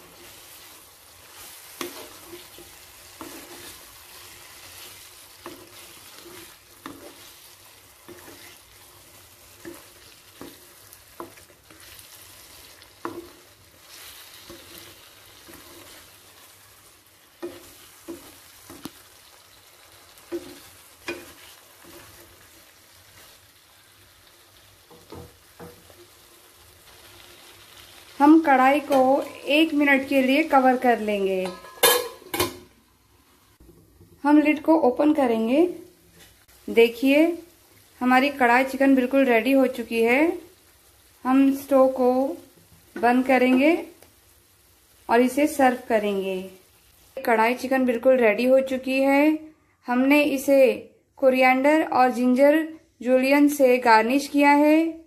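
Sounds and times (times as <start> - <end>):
spatula scraping a pan: 0.0 - 23.5
curry sizzling in a pan: 0.0 - 55.0.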